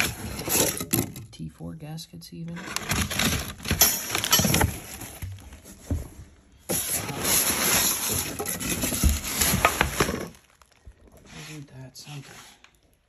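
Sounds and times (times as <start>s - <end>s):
paper and plastic wrap rustling: 2.6s - 12.9s.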